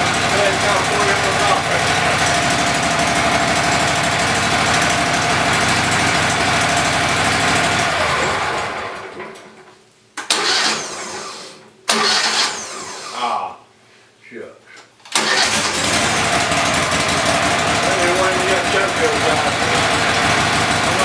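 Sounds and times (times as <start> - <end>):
sawmill engine running: 0.0 - 9.2, 15.2 - 21.0
sudden loud bursts: 15.2 - 21.0.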